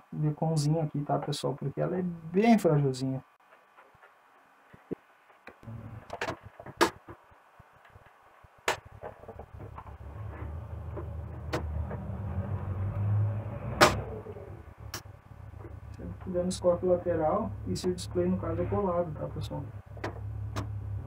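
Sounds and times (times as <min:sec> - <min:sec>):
clicks and knocks of tv chassis: 0:05.5 - 0:08.0, 0:10.9 - 0:12.1.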